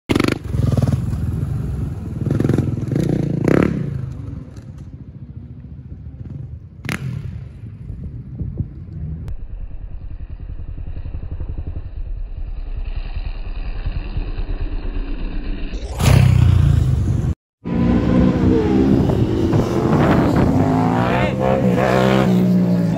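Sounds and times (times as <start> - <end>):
dirt bike engine revving: 0.1 - 4.0, 10.7 - 22.9.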